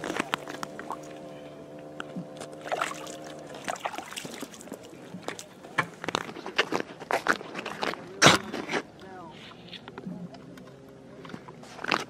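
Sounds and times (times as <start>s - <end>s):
steady motor hum: 0.0s - 6.0s
water sloshing and splashing: 0.0s - 10.3s.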